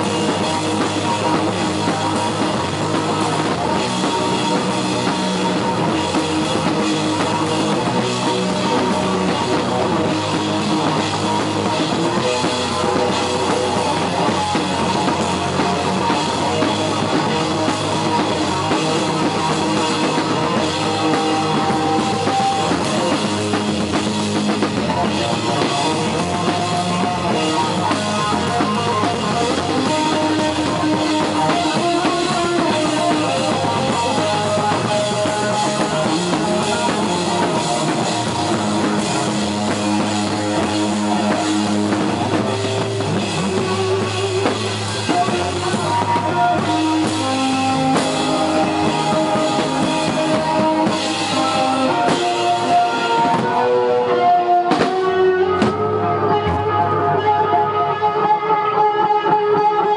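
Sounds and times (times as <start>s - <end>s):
punk rock band playing: 0.0s - 59.9s.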